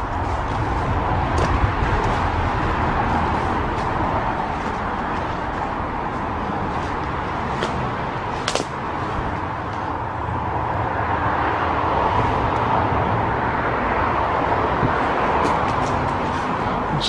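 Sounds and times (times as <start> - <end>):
steady low rumble: 0.0 - 17.0
footsteps through undergrowth: 0.1 - 8.8
twigs snapping: 8.4 - 8.8.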